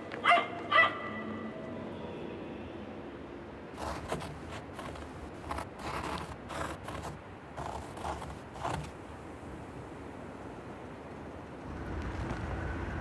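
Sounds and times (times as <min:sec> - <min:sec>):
pen scratching on paper: 0:03.8 - 0:08.9.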